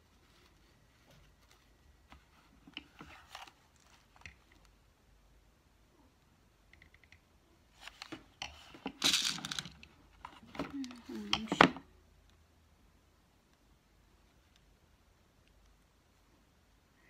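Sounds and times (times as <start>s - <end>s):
hands rustling ribbon: 0.0s - 4.7s.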